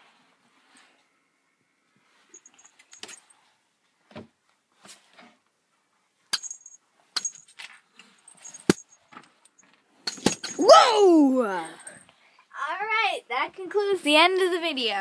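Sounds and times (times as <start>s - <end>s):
small metallic jingling: 2.3s - 3.4s, 6.4s - 10.6s.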